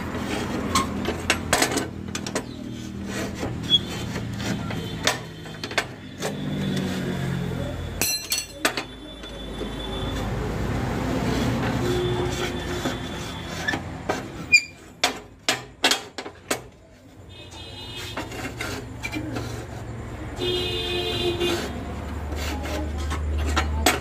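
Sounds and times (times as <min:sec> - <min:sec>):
metal scraping: 0:00.0 - 0:09.0, 0:09.6 - 0:24.0
sharp metallic clinks and knocks: 0:08.0 - 0:09.3.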